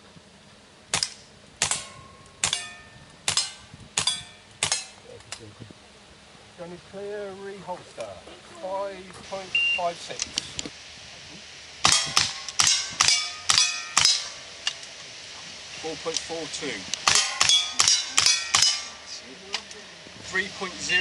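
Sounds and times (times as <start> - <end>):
steel plates ringing: 1.6 - 5.0, 11.8 - 14.8, 17.0 - 19.2
pistol shots: 3.3 - 4.9, 11.8 - 14.3, 17.0 - 18.9.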